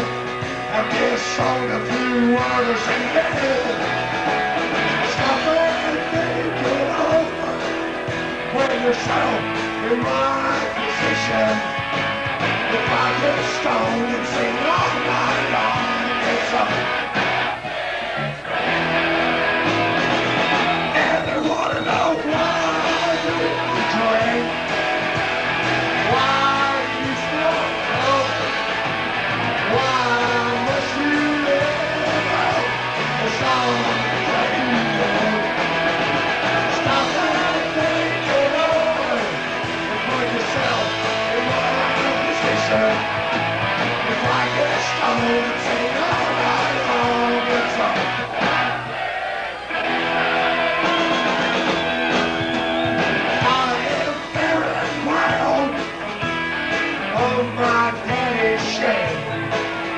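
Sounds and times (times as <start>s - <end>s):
drums: 0.0s - 59.9s
electric guitars: 0.0s - 59.9s
singer singing into a microphone: 0.6s - 4.0s, 4.9s - 11.9s, 12.7s - 17.1s, 20.8s - 24.8s, 26.0s - 28.7s, 29.6s - 35.6s, 36.6s - 43.2s, 43.9s - 48.8s, 53.4s - 56.0s, 56.8s - 59.7s.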